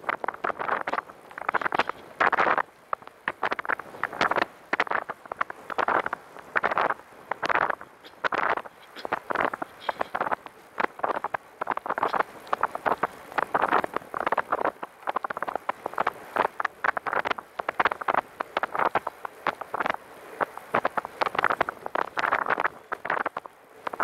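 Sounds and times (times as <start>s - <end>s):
trike rolling on pavement: 0.0s - 24.0s.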